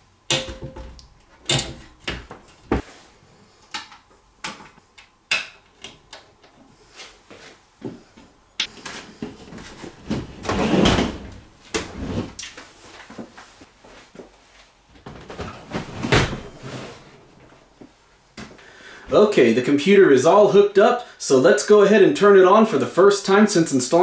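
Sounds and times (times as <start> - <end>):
computer case scraping: 9.1 - 12.4, 15.0 - 17.5.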